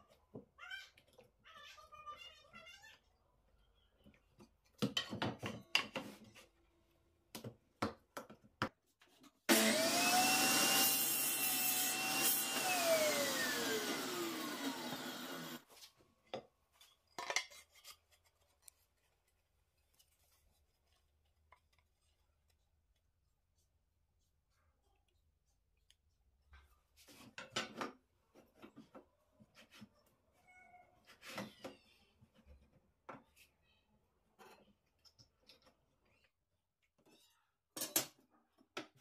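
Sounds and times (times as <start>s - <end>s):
saw blade spinning down: 9.5s - 15.6s
table saw running: 9.5s - 15.6s.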